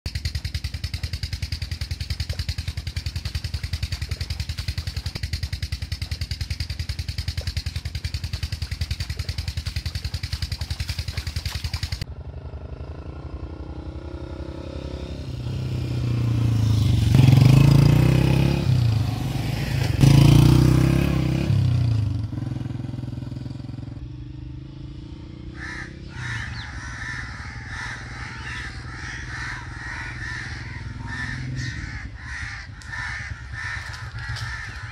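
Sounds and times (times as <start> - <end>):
diesel engine thumping: 0.1 - 12.0
motorcycle passing: 0.1 - 34.9
crows cawing: 25.4 - 34.9.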